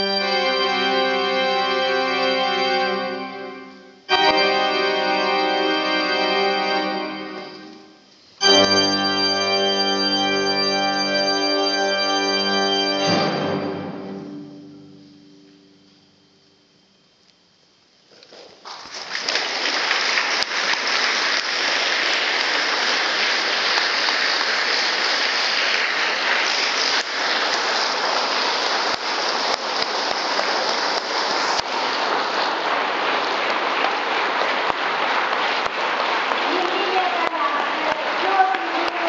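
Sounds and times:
audience applause: 0:00.0 - 0:10.5, 0:18.6 - 0:39.0.

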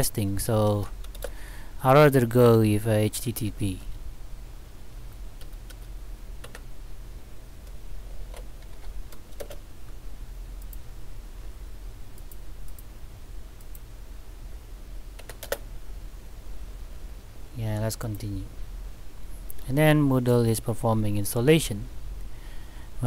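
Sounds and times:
low steady hum: 0:00.0 - 0:23.0
computer keystrokes and clicks: 0:01.0 - 0:01.4, 0:05.4 - 0:06.7, 0:07.6 - 0:09.6, 0:12.1 - 0:12.9, 0:13.6 - 0:13.9, 0:15.2 - 0:15.6.

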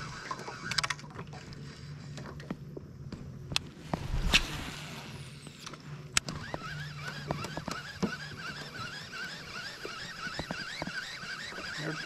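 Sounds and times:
fishing reel whine: 0:00.0 - 0:02.0, 0:04.0 - 0:12.0
fishing rod swish: 0:03.8 - 0:05.2.

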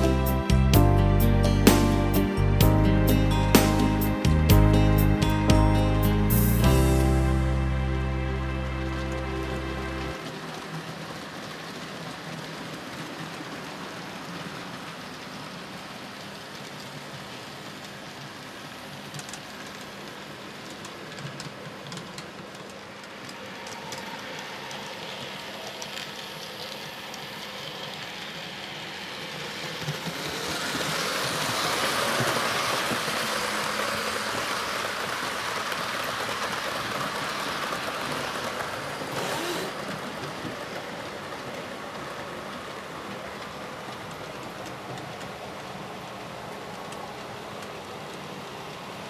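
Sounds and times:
model train wheels rattling: 0:19.1 - 0:42.3.

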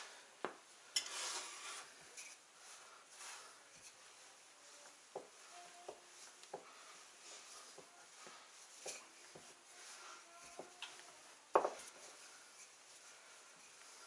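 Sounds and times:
rolling pin knocking on dough: 0:11.5 - 0:11.8.

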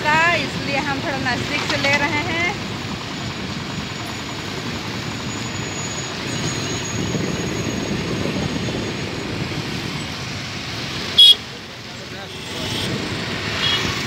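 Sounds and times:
road noise: 0:00.0 - 0:14.0
wind buffeting microphone: 0:06.2 - 0:10.6.

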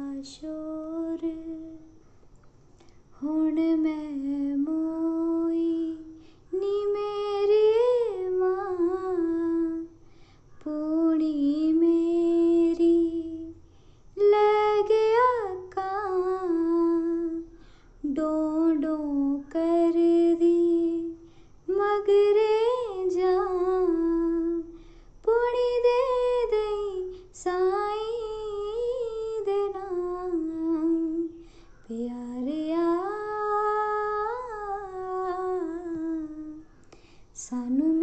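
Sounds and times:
woman singing unaccompanied: 0:00.0 - 0:02.0, 0:03.1 - 0:38.0.

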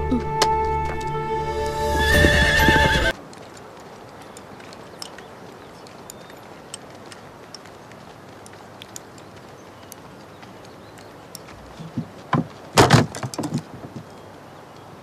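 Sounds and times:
faint small clicks: 0:03.3 - 0:11.6.

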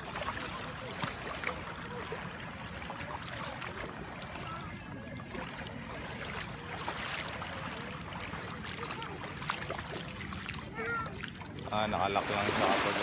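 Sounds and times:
sea water lapping at shoreline: 0:00.0 - 0:13.0.

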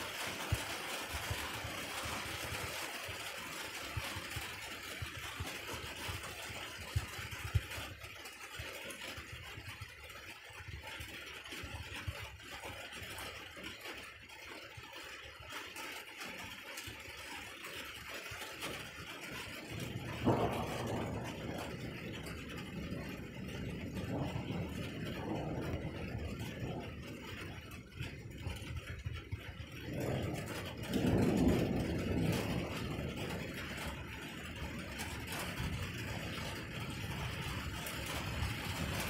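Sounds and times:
rain hissing: 0:00.0 - 0:08.6, 0:16.3 - 0:39.0
wind: 0:00.0 - 0:39.0
low rumbles and thumps: 0:18.6 - 0:39.0.

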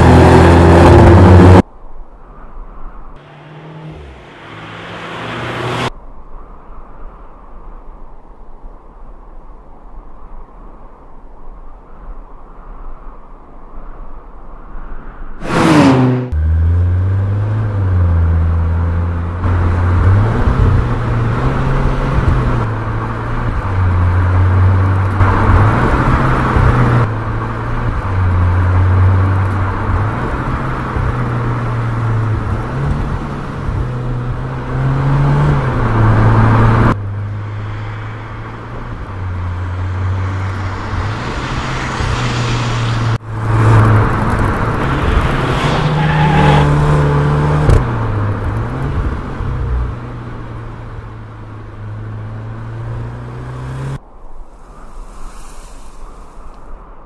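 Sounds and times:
car engine accelerating: 0:00.0 - 0:01.6, 0:03.2 - 0:05.9, 0:15.4 - 0:54.0
falling whoosh: 0:39.1 - 0:46.8.

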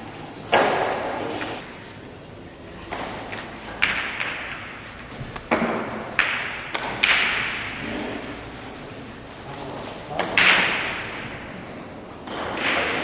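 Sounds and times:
billiard balls clicking: 0:02.8 - 0:07.9
cue striking ball: 0:05.5 - 0:07.8.

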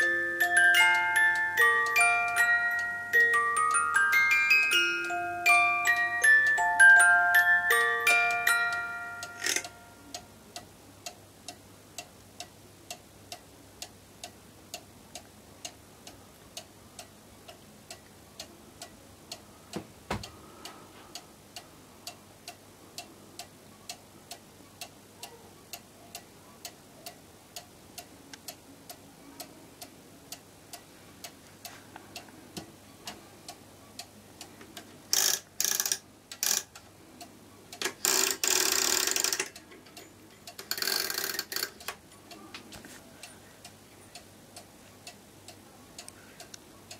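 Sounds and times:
music box notes: 0:00.0 - 0:10.4
clock ticking: 0:00.0 - 0:20.4, 0:21.1 - 0:42.9.

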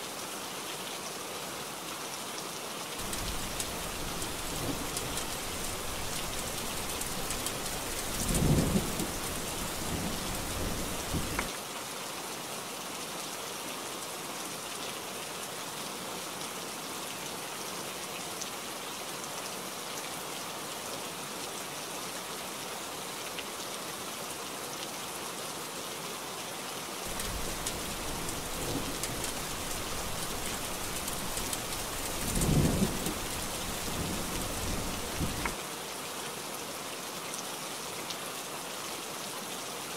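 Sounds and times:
heavy rain: 0:00.0 - 0:39.9
thunder rumbling: 0:03.0 - 0:11.5, 0:27.1 - 0:35.6.

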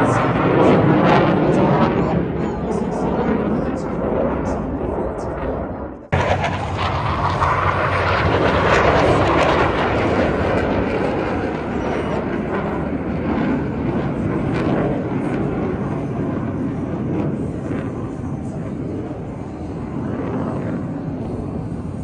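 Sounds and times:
aircraft flying past: 0:00.0 - 0:22.0.

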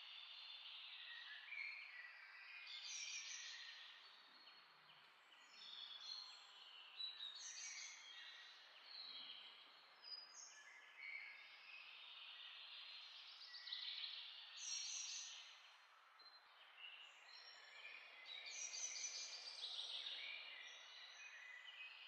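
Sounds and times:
faint bird chirping: 0:00.0 - 0:22.0.

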